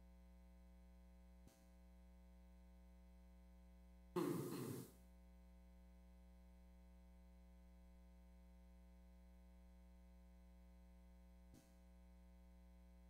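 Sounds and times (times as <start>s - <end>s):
small click: 1.4s - 1.8s, 11.5s - 11.8s.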